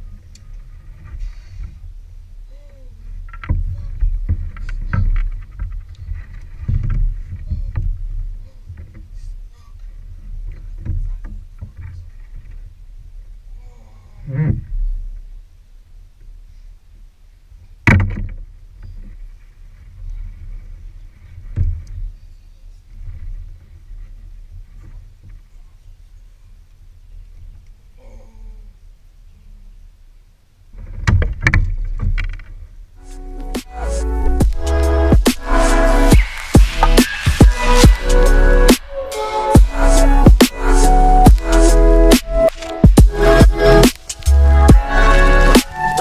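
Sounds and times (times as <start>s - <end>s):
low steady rumble: 0.0s - 45.9s
thumps on plastic kayak hull: 17.9s - 18.5s.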